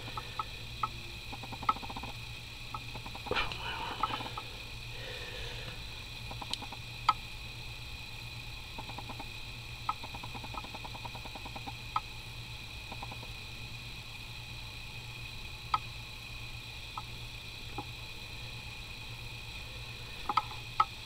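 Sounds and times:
steady electrical hum: 0.0s - 21.0s.

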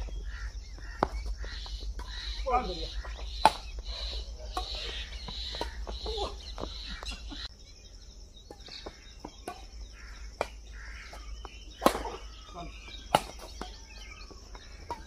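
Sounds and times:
birds calling: 0.0s - 15.0s
racket hitting shuttlecock: 3.4s - 3.8s, 4.5s - 7.2s, 11.8s - 12.3s, 13.1s - 13.8s.

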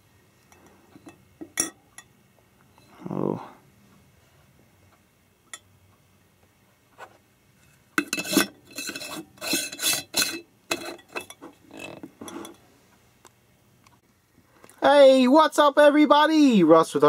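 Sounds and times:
lid threads grating on glass jar: 7.6s - 12.6s.

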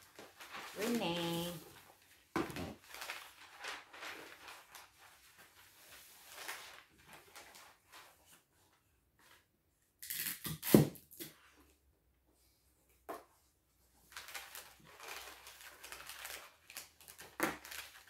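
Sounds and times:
wrapping paper rustling: 0.0s - 9.4s, 13.8s - 18.0s
tape pulled and torn from dispenser: 10.0s - 11.4s.

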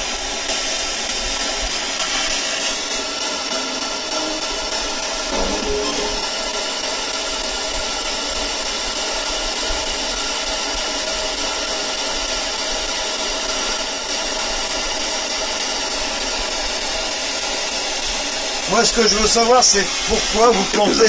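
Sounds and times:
faint steady tones: 3.5s - 6.8s.

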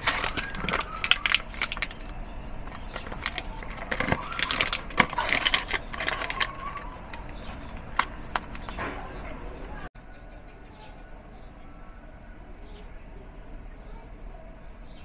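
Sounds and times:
cardboard rustling and scraping: 0.0s - 9.2s.

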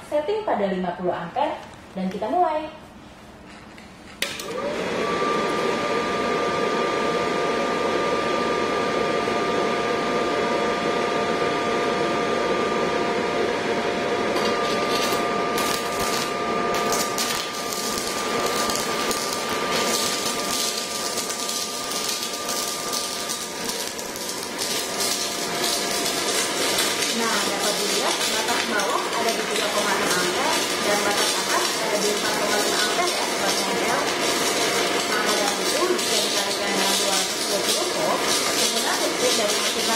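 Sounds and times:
welder cooling fan whirring: 0.0s - 39.9s
welding arc crackling: 14.3s - 39.9s.

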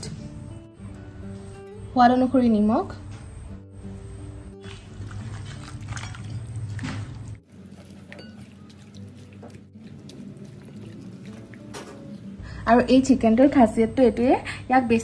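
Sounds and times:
soft background music: 0.0s - 15.0s
wet squelching of hand mixing: 4.6s - 12.4s.

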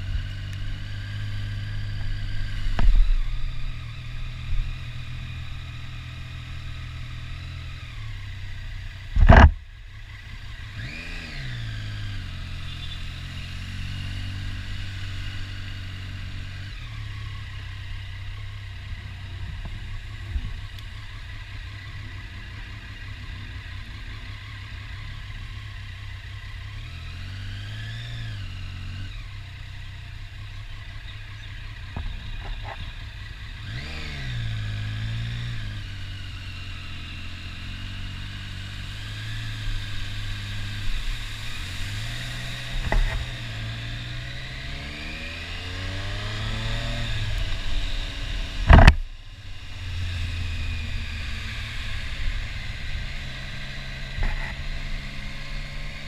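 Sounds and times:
motorcycle engine accelerating: 0.0s - 56.0s
road and wind noise: 0.0s - 56.0s
loud sharp thump: 9.2s - 9.6s, 48.7s - 49.0s.

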